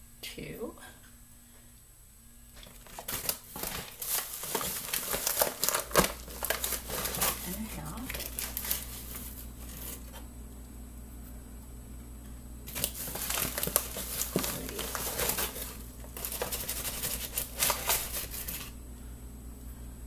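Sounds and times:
flour bag crinkling: 2.6s - 10.2s, 12.7s - 18.8s.

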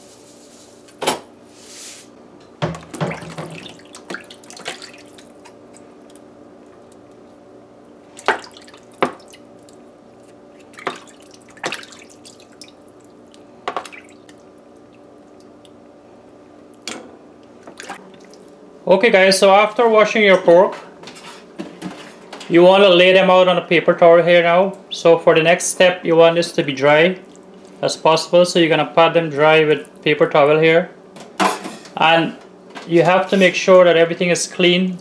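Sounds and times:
water splashing in bowl: 2.8s - 5.6s, 8.1s - 15.5s, 17.7s - 18.5s.

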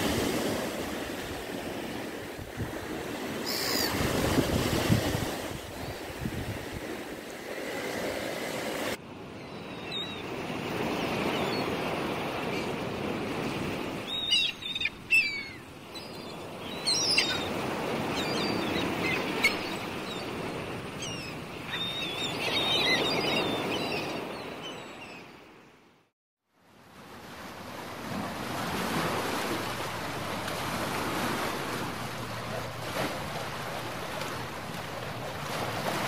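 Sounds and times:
small waves washing on shore: 0.0s - 9.0s, 26.7s - 36.0s
gulls calling: 9.4s - 25.3s.

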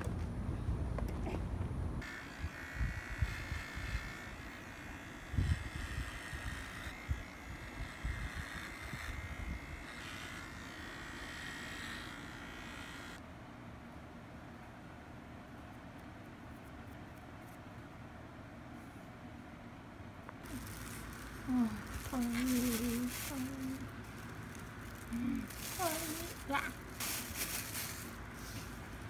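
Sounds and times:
electric pet clippers buzzing: 2.0s - 13.2s.

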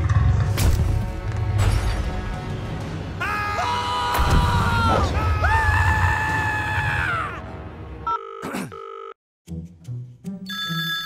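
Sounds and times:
background music: 0.0s - 11.0s
person screaming: 3.2s - 7.5s.

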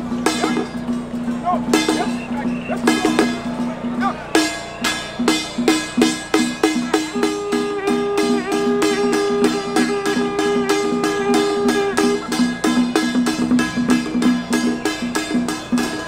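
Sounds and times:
plucked-string notes: 0.0s - 16.0s
long held high note: 1.6s - 13.5s.

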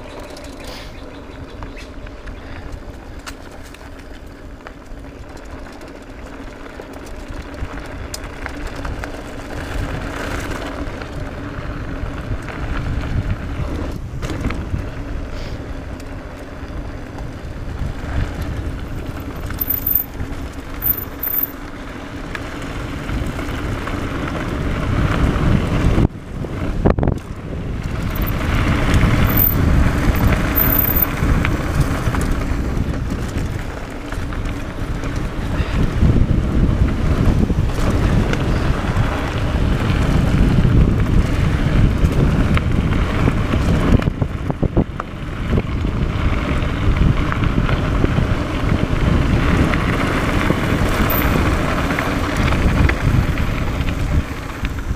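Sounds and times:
bike rattling: 0.0s - 54.9s
bike tyres rolling over dirt: 0.0s - 54.9s
wind buffeting microphone: 22.3s - 54.9s.

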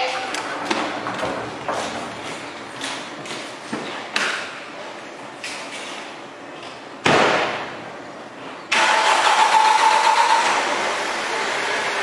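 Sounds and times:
car engine starting and running: 8.7s - 12.0s.

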